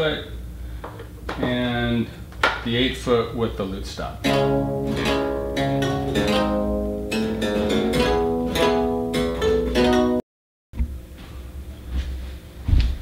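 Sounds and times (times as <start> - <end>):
harpsichord plucked notes: 4.2 - 10.2.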